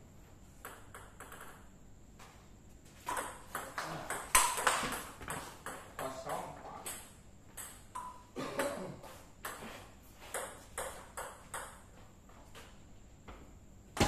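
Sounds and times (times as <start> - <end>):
table tennis ball hits: 0.6 - 1.7, 3.0 - 8.7, 9.4 - 11.9.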